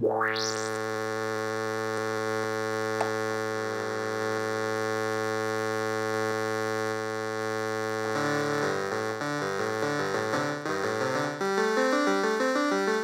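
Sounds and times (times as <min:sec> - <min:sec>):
analog synthesizer notes: 0:08.0 - 0:13.0.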